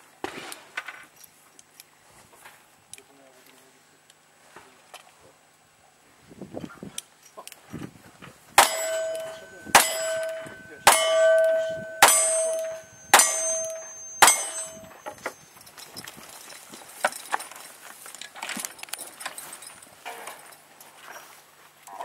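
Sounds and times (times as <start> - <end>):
steel target ringing clang: 8.6 - 15.4.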